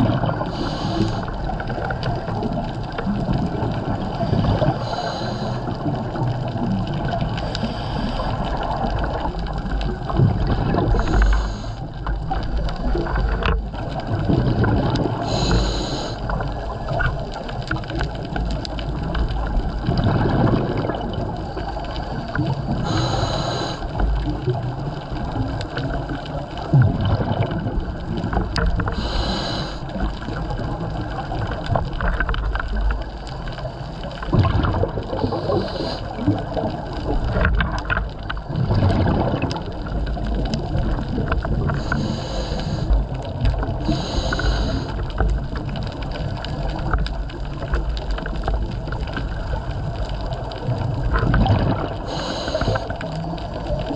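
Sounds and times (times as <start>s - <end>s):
exhaled air bubbling underwater: 0.0s - 53.9s
regulator inhalation hiss: 0.4s - 1.3s, 4.8s - 5.8s, 11.0s - 11.8s, 15.2s - 16.4s, 22.8s - 23.9s, 28.9s - 29.8s, 35.2s - 36.2s, 41.8s - 43.0s, 43.8s - 45.0s, 52.0s - 52.9s.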